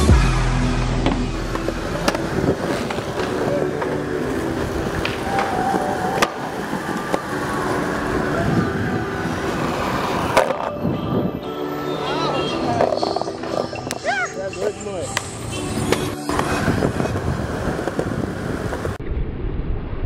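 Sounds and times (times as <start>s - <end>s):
city traffic noise: 0.0s - 19.0s
skateboard wheels rolling on concrete: 0.0s - 19.1s
skateboard snaps and landings: 5.0s - 7.3s.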